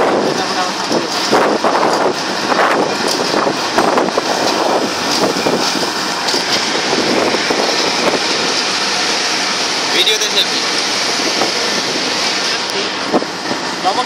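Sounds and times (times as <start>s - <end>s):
wind on microphone: 0.0s - 9.7s, 11.0s - 13.8s
train wheels rumbling on rails: 0.0s - 14.0s.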